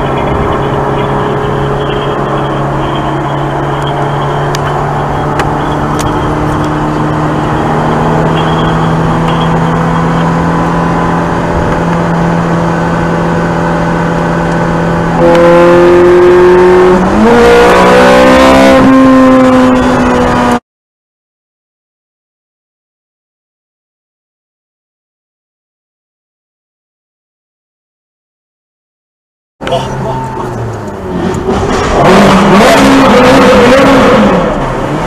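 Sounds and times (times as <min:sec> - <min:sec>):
car engine accelerating: 0:00.0 - 0:20.6, 0:29.6 - 0:35.0.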